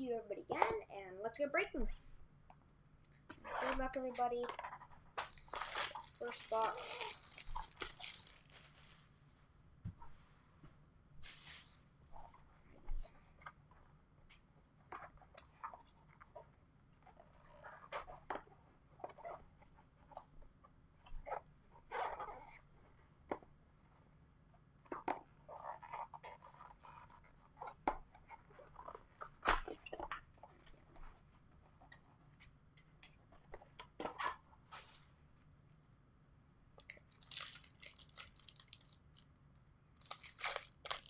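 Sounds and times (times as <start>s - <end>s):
cardboard rustling: 5.2s - 9.1s, 36.9s - 39.2s, 40.0s - 41.0s
wrapper crinkling: 5.2s - 9.1s, 36.8s - 41.0s.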